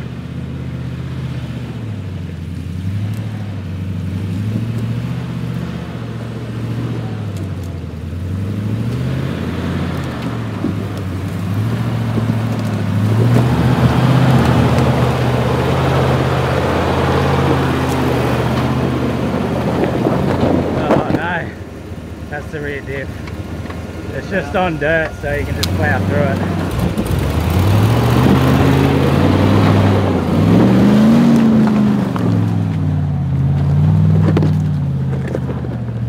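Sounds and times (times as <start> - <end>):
off-road vehicle engine at low revs: 0.0 - 36.0.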